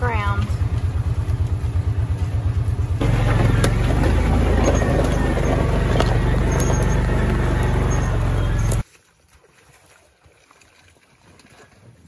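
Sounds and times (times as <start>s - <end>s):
utility vehicle engine: 0.0s - 8.8s.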